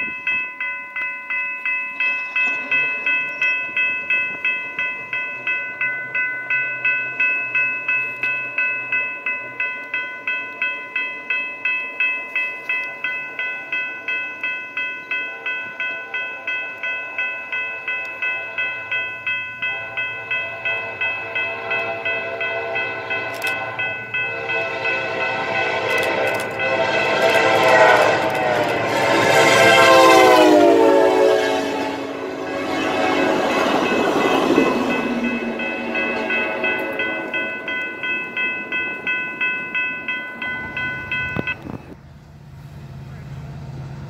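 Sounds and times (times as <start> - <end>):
crossing warning bell ringing: 0.0 - 44.0
locomotive horn chord: 19.6 - 37.4.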